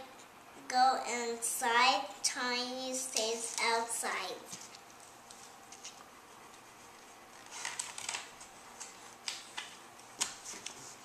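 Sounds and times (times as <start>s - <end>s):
faint paper rustles: 4.5s - 11.0s
book pages turning: 7.3s - 11.0s.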